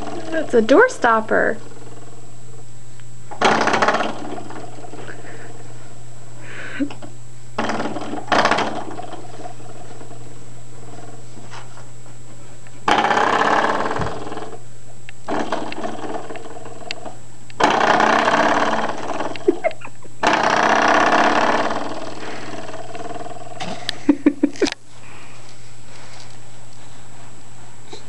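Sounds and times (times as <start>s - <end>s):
spring door stopper twanging: 3.3s - 5.1s, 6.9s - 9.5s, 12.9s - 14.6s, 15.3s - 23.8s.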